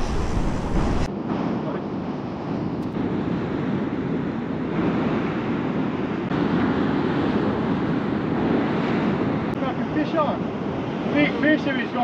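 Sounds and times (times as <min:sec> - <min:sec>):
surf breaking over rocks: 0:00.0 - 0:01.1
wind buffeting microphone: 0:00.0 - 0:12.0.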